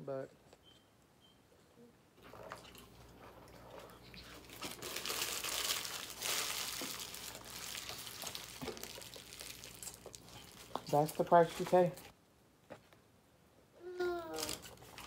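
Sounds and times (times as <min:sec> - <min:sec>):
food packaging crinkling: 0:04.2 - 0:12.0, 0:14.3 - 0:15.0.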